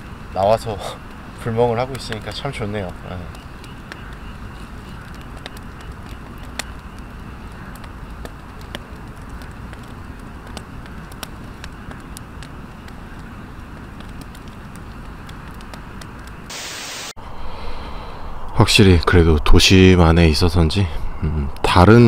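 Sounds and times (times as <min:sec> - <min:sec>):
steady hiss: 0:00.0 - 0:06.0, 0:08.4 - 0:19.9
campfire crackling and popping: 0:00.0 - 0:17.1.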